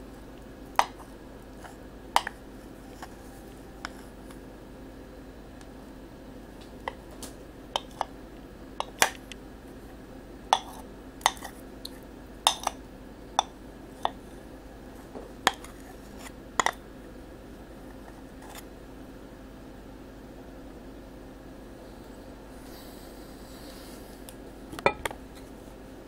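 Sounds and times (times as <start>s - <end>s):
steady low hum: 0.0s - 26.0s
spoon clinking against bowl: 12.5s - 12.8s.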